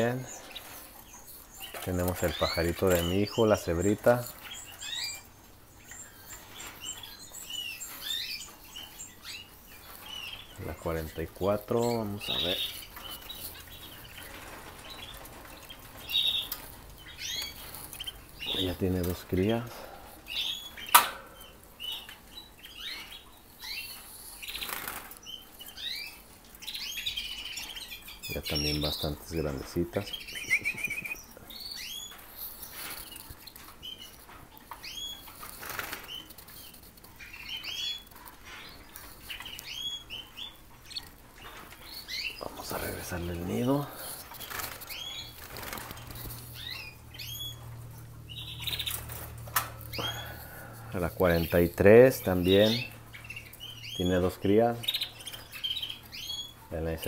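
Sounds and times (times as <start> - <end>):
canary chirping: 0.0 - 57.0
birds fluttering wings: 11.4 - 20.2, 24.0 - 25.5, 32.1 - 37.2, 41.0 - 46.8.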